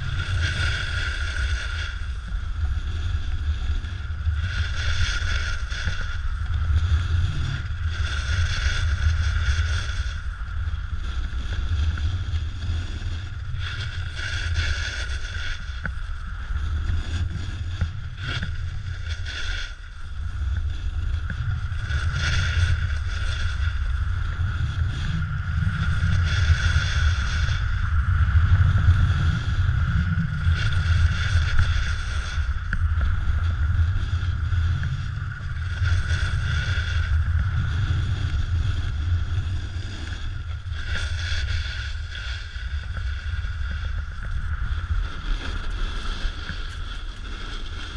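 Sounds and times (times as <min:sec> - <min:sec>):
snowboard edge scraping snow: 0:00.0 - 0:02.2, 0:02.8 - 0:10.4, 0:11.0 - 0:47.9
wind buffeting microphone: 0:00.0 - 0:47.9.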